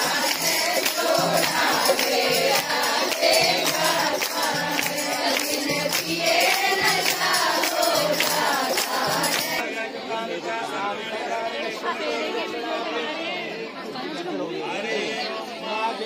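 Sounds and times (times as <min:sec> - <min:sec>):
jingling percussion beat: 0:00.0 - 0:09.6
group of voices singing: 0:00.0 - 0:14.0.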